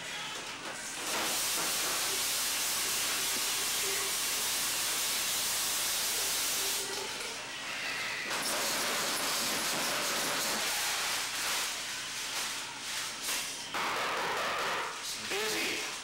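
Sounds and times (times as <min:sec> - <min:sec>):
tap water running into sink: 0:01.1 - 0:07.4.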